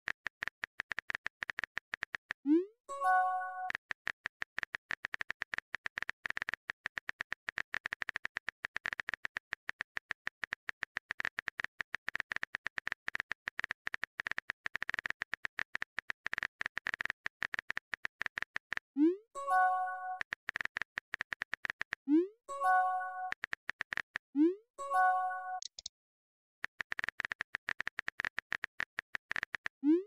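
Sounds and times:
phone keyboard typing clicks: 25.1 - 25.9, 26.6 - 29.8.

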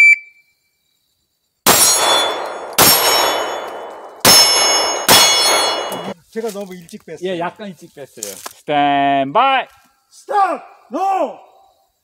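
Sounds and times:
handgun shots: 1.7 - 6.1
steel plate target ringing: 1.7 - 6.2.

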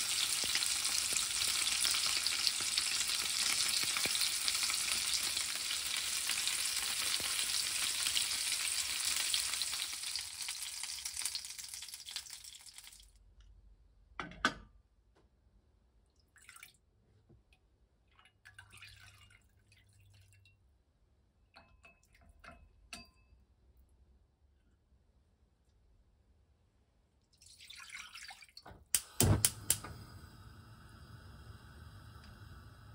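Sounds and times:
peppers sizzling in oil: 0.0 - 13.1
sauce pouring into bowl: 0.1 - 13.1.

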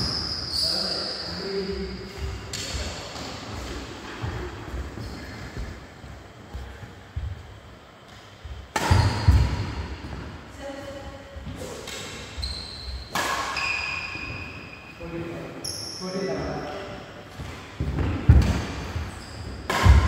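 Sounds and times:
racket striking shuttlecock: 8.7 - 9.8, 13.1 - 13.7, 19.7 - 20.0.

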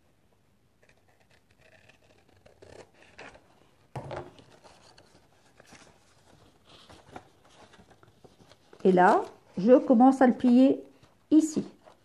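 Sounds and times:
paper rustling and knocking: 3.9 - 4.6.

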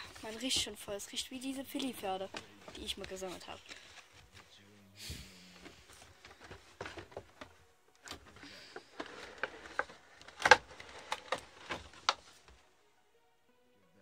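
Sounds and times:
box clattering: 0.0 - 1.0, 1.6 - 4.2, 5.6 - 12.6
cardboard packaging rustling: 0.0 - 4.6, 5.5 - 12.7.

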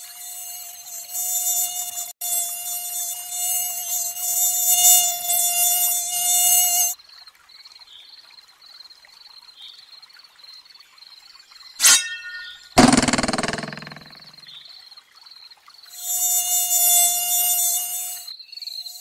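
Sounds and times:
mosquito high whining buzz: 0.0 - 7.0, 16.0 - 19.0.

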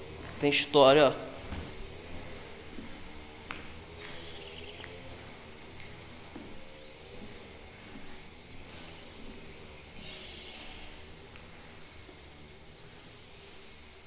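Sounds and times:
faint high bird chirps: 8.8 - 11.0.

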